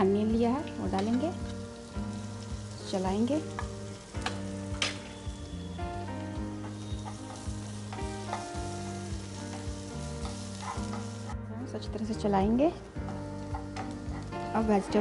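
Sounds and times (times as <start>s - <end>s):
vegetables sizzling in hot oil: 0.0s - 15.0s
wooden spatula stirring: 6.6s - 11.4s.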